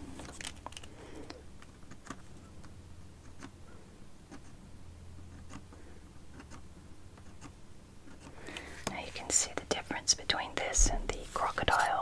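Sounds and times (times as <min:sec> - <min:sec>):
low steady hum: 0:00.0 - 0:12.0
pencil strokes on paper: 0:08.1 - 0:12.0.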